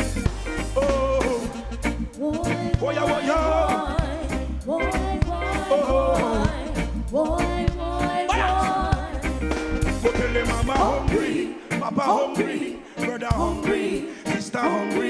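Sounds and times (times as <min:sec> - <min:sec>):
live reggae band playing: 0:00.0 - 0:15.0
female backing singers: 0:02.2 - 0:09.4, 0:10.5 - 0:15.0.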